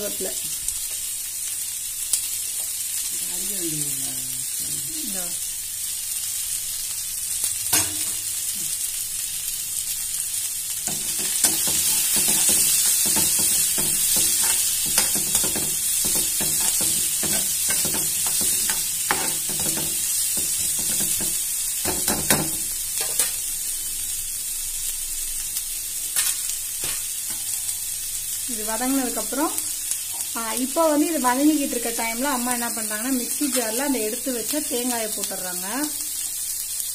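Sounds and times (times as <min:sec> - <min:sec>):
onions sizzling in hot oil: 0:00.0 - 0:36.9
spoon scraping and knocking pan: 0:07.7 - 0:08.2, 0:10.8 - 0:23.4.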